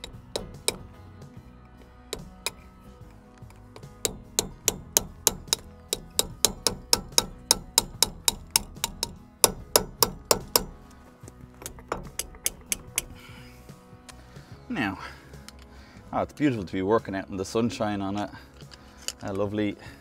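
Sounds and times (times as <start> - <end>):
hammer tapping on pliers: 0.0 - 1.0, 2.1 - 2.7, 3.4 - 10.9, 11.6 - 13.2
background music: 0.0 - 20.0.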